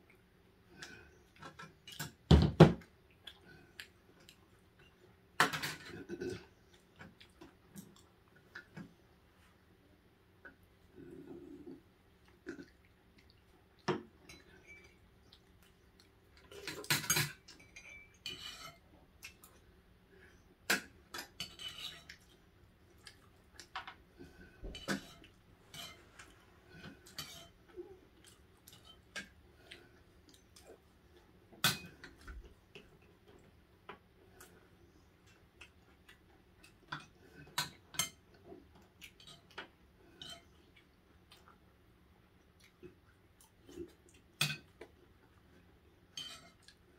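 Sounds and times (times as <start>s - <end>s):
utensils clinking on food containers: 16.6s - 18.8s.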